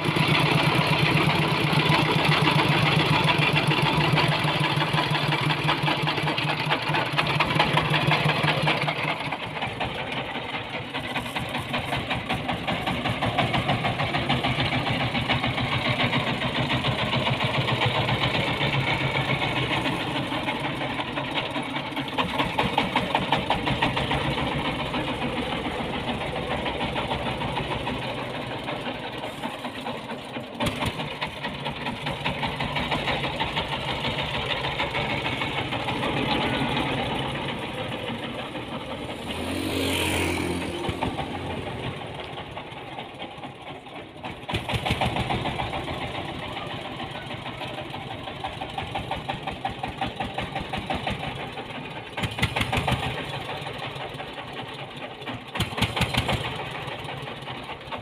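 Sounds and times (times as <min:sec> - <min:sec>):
diesel truck engine chugging: 0:00.0 - 0:58.0.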